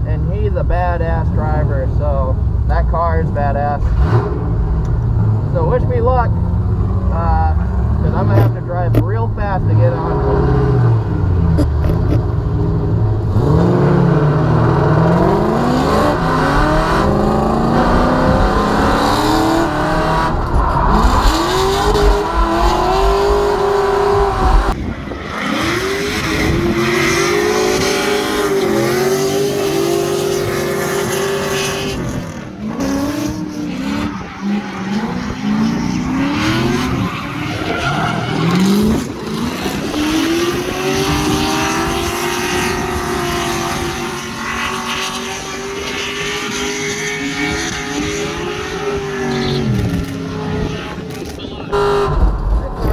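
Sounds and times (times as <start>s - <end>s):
car engine revving: 0.0s - 52.9s
tire squeal: 33.4s - 39.2s, 44.0s - 51.0s.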